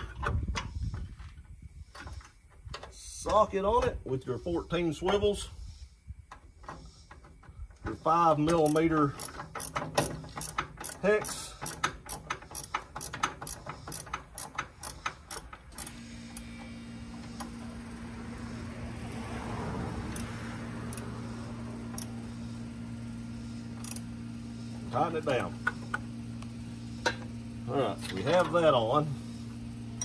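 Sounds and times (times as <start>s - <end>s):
steady low hum: 0.0s - 30.0s
hand ratchet clicking: 8.4s - 16.5s, 23.8s - 24.1s.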